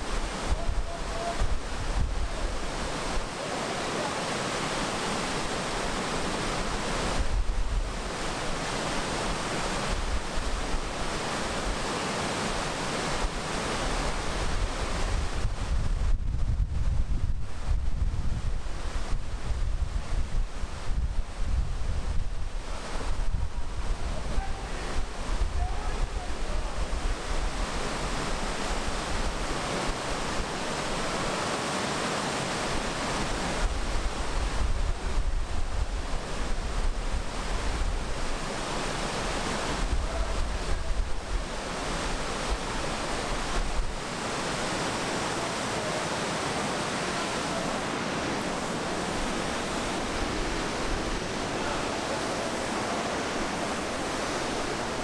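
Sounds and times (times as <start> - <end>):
river rapids rushing: 0.0 - 15.8, 18.4 - 55.0
wind buffeting microphone: 14.4 - 29.6.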